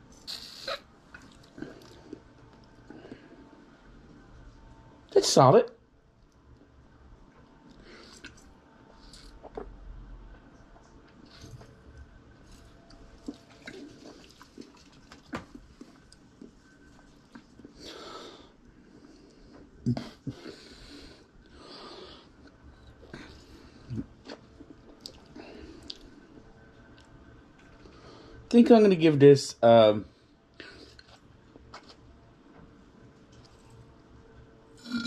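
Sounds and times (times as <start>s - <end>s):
lip smacks and mouth clicks: 24.2s - 26.1s.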